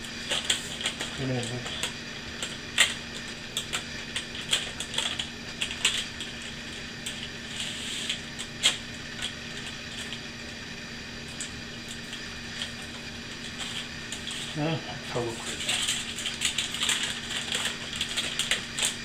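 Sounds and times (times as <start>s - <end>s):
baking paper crinkling: 0.1s - 10.3s, 11.2s - 19.0s.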